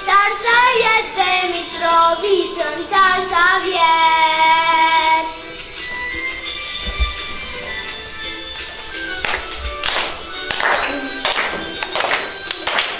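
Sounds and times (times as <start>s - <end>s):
girl singing into microphone: 0.0s - 5.5s.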